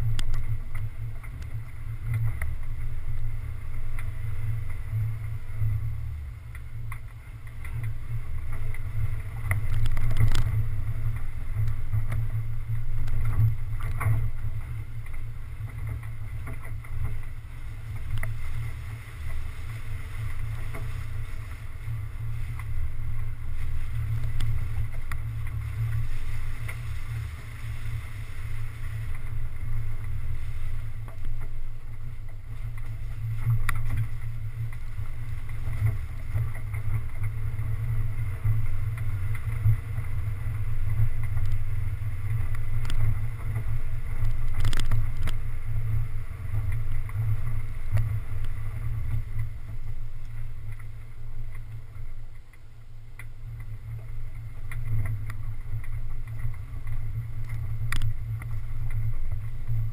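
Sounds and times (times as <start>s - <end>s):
muffled vehicle rumble: 0.0s - 59.9s.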